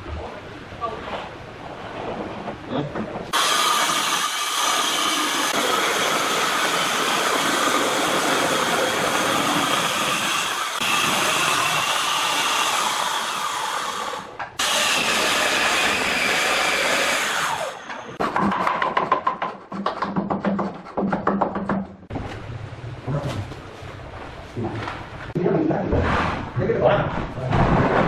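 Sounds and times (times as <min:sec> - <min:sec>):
hand saw cutting wood: 0:03.3 - 0:17.9
electric circular saw cutting wood: 0:03.3 - 0:18.2.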